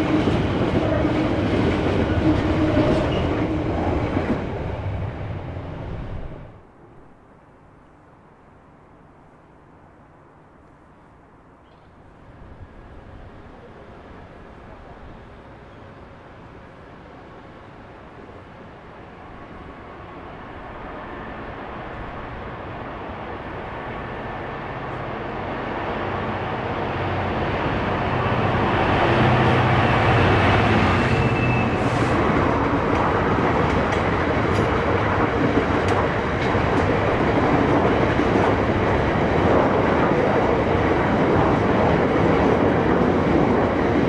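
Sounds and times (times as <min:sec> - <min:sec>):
diesel locomotive passing: 0:00.0 - 0:44.0
train wheel clicks: 0:32.8 - 0:38.6.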